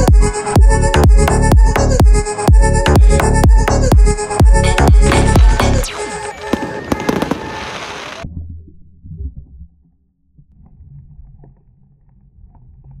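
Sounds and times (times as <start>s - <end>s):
music: 0.0s - 13.0s
fireworks: 5.1s - 8.2s
muffled underwater rumble: 8.2s - 13.0s.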